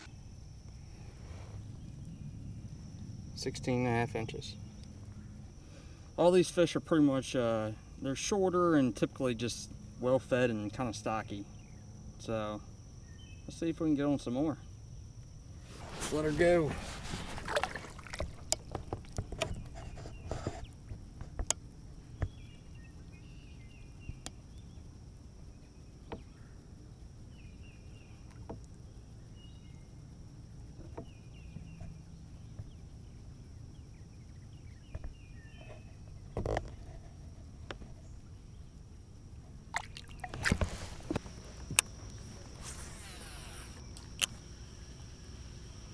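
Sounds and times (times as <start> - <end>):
water lapping against a kayak: 15.5 - 21.5, 39.6 - 44.1
small splashes: 15.7 - 19.6, 39.7 - 41.4.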